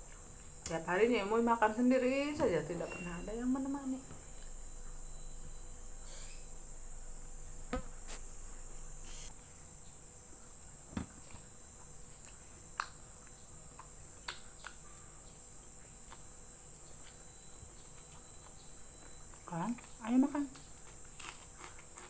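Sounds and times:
high-pitched hiss: 1.4 - 10.4
person chewing food: 10.4 - 22.0
mouth smacks and clicks: 12.2 - 14.9.

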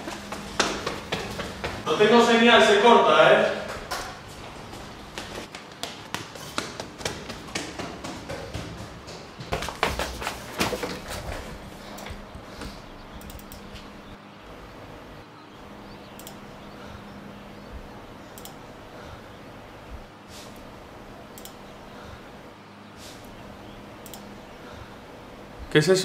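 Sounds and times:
low steady hum: 11.2 - 25.8
keyboard and mouse clicks: 13.2 - 13.7.

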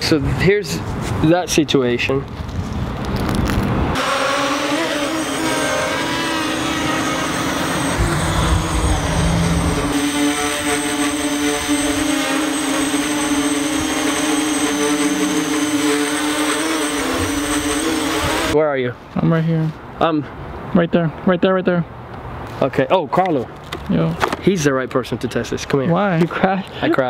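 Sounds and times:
quadcopter propellers buzzing: 3.4 - 18.6.

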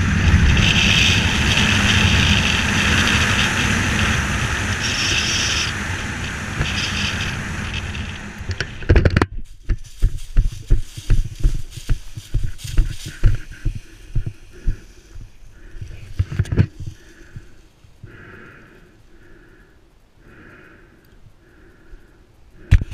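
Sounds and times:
wind rushing over camera: 0.0 - 19.0
thumping footfalls on ground: 9.3 - 14.8.

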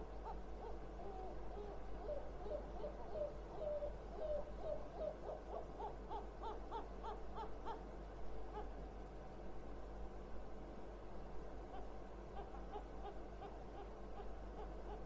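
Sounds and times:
gulls hooting calls: 0.0 - 7.9, 11.7 - 15.0.

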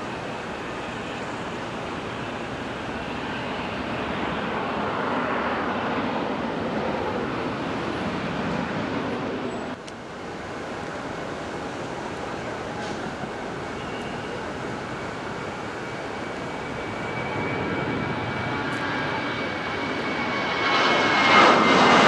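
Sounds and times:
jet engines rushing: 0.0 - 22.0.

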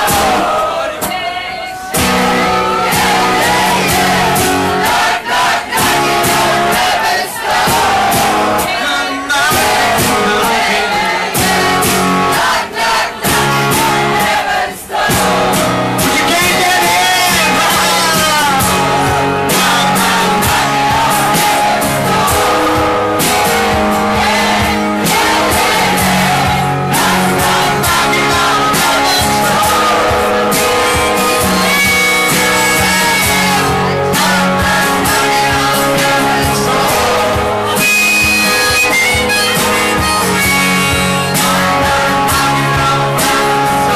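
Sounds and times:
guitar: 0.0 - 43.9
man singing: 7.8 - 12.5, 16.0 - 43.9
harmonica notes: 17.6 - 43.9.

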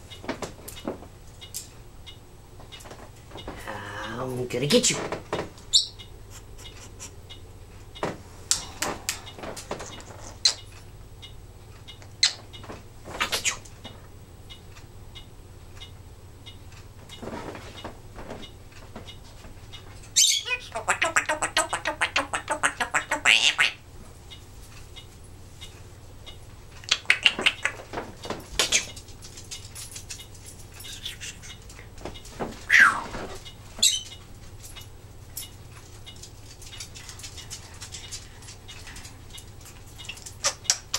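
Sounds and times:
faint steady hum: 0.0 - 40.9
parrot clicking: 8.5 - 12.6, 20.1 - 32.0, 32.7 - 40.9.

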